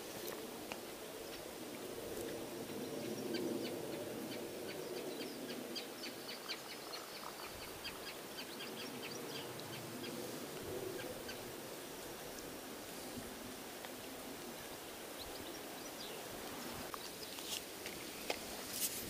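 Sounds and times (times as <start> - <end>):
faint background hiss: 0.0 - 19.0
small birds chirping: 2.2 - 11.5, 15.1 - 18.3.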